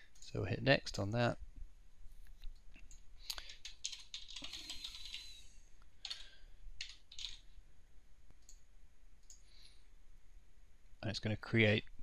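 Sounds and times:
typing on computer keyboard: 0:03.4 - 0:05.4, 0:06.0 - 0:07.4.

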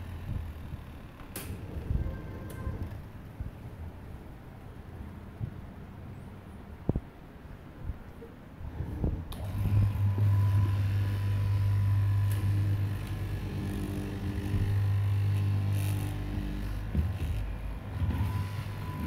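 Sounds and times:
cloth cutting machine humming: 0:08.9 - 0:19.0.

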